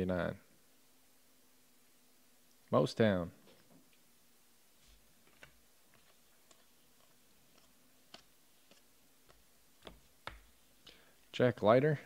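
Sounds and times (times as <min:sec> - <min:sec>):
cards being flicked and shuffled: 0:04.8 - 0:11.0.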